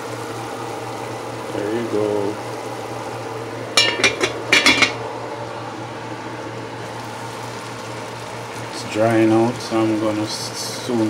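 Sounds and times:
steady low hum: 0.4 - 8.6
glass lid clinking on metal pot: 3.8 - 5.0.

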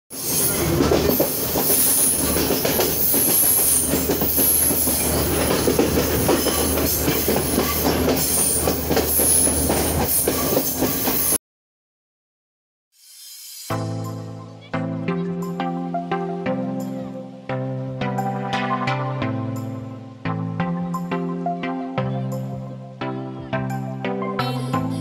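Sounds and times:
train wheels clattering over rails: 0.1 - 11.4
low train hum: 0.2 - 11.4
high squeal: 13.0 - 13.8.

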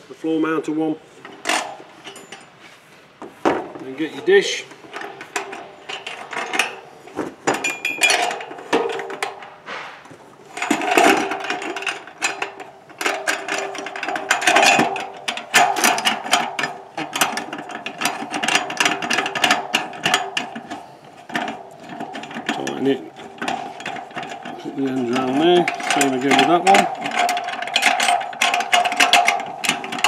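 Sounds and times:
metal clanking and knocking: 1.2 - 2.6, 3.2 - 30.0
rapid clicking of bolts: 10.6 - 30.0.

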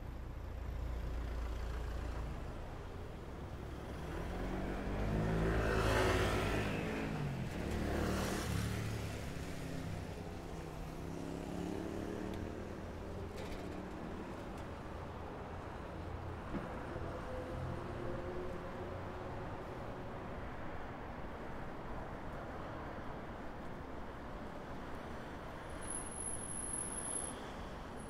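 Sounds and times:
low traffic rumble: 0.0 - 25.8
motor vehicles passing: 3.4 - 16.0.

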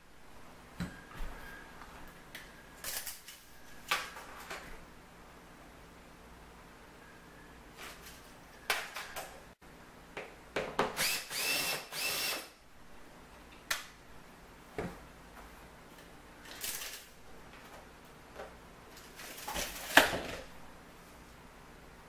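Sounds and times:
cordless drill whining: 11.0 - 12.5.

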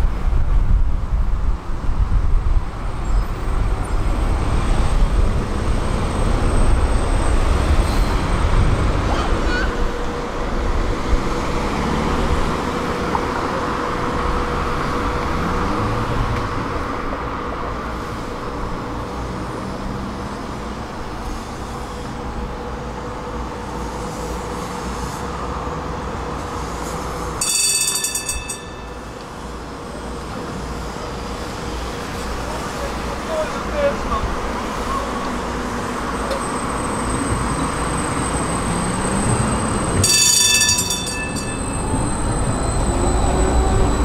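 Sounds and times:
tram rolling on rails: 0.0 - 44.0
short high ringing: 40.0 - 43.0.

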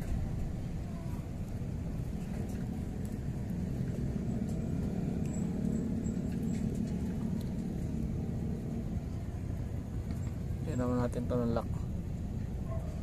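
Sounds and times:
low rumble: 0.0 - 13.0.

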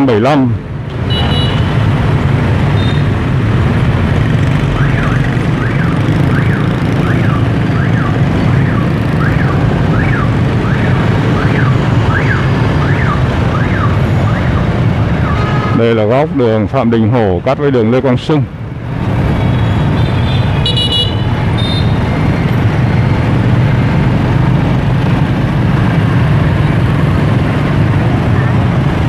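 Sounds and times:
street traffic rumble: 0.0 - 29.0
electronic siren wail: 4.7 - 15.4.

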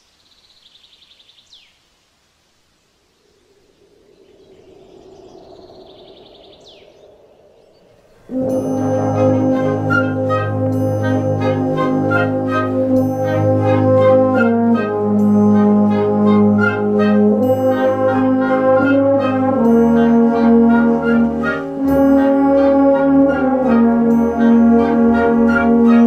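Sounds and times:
brass band playing chords: 8.3 - 26.0.

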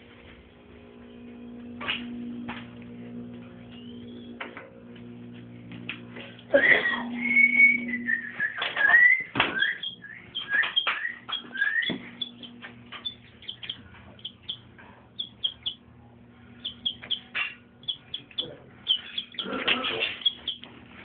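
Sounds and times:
faint steady hum: 0.0 - 21.0
chick peeping: 7.7 - 15.8, 16.6 - 20.8.

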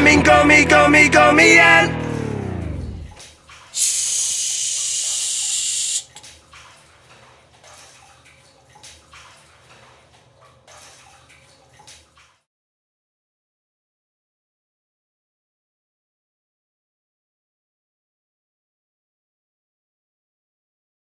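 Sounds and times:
splashing and dripping in a bathtub: 3.1 - 12.5
water running from a tap: 3.5 - 6.8.

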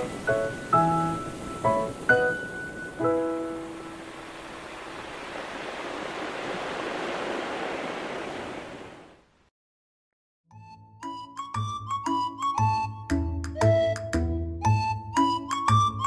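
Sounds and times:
music: 0.0 - 4.0, 10.5 - 16.0
surf hissing: 0.0 - 9.2.

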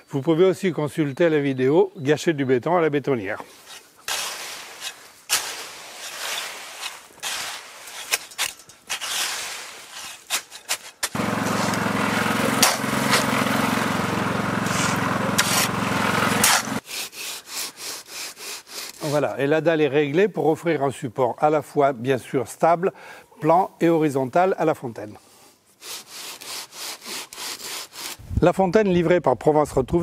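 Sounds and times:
rake scraping through wet concrete: 3.4 - 19.4, 25.8 - 28.2
straightedge rubbing on concrete: 3.5 - 19.2, 25.8 - 28.2
concrete mixer motor humming: 11.0 - 16.8.

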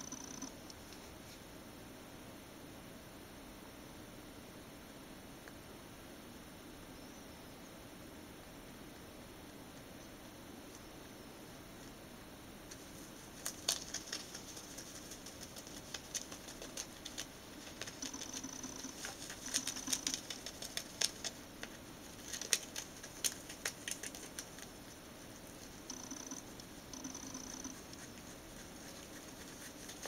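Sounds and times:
rabbit chewing paper: 12.7 - 30.0.

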